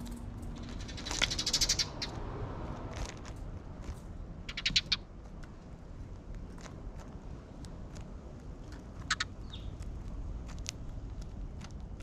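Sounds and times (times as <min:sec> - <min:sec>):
sparrows chirping: 0:00.0 - 0:02.3, 0:04.4 - 0:05.1, 0:08.9 - 0:09.9.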